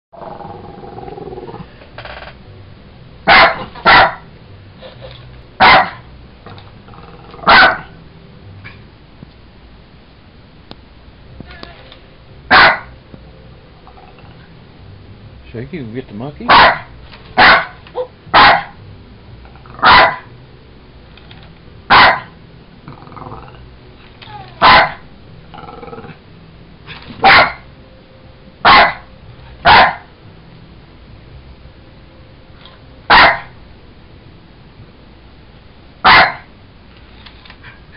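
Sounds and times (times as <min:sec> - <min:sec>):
dog barking: 0:03.3 - 0:04.2, 0:05.6 - 0:06.1, 0:07.4 - 0:08.0, 0:12.5 - 0:12.9, 0:16.5 - 0:18.8, 0:19.8 - 0:20.3, 0:21.9 - 0:22.3, 0:24.6 - 0:25.1, 0:27.2 - 0:27.6, 0:28.6 - 0:30.1, 0:33.1 - 0:33.6, 0:36.0 - 0:36.5.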